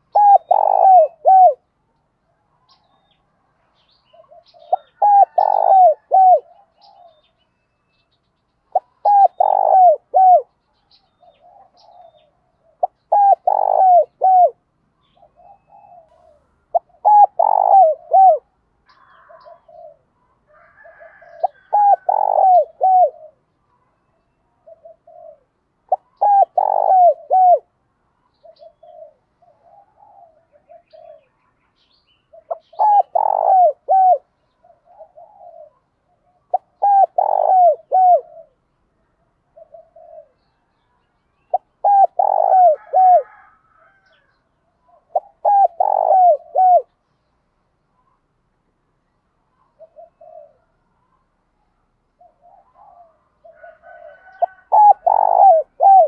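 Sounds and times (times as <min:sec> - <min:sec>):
dove cooing: 0:00.0 - 0:01.7, 0:04.0 - 0:07.4, 0:08.7 - 0:10.5, 0:11.2 - 0:23.5, 0:24.5 - 0:27.7, 0:28.3 - 0:31.4, 0:32.3 - 0:38.7, 0:39.4 - 0:40.6, 0:41.5 - 0:47.0, 0:49.6 - 0:51.2, 0:52.2 - 0:56.0.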